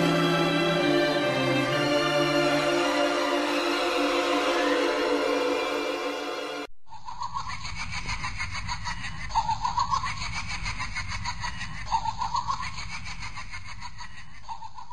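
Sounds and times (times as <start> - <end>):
choppy laughter: 7.0 - 14.9.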